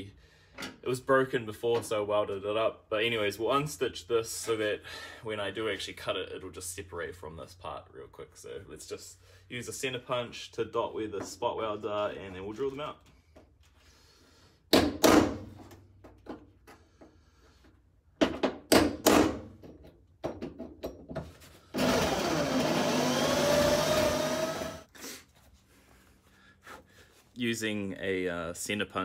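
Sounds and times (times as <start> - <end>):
electric drill cutting metal: 21.8 - 24.9.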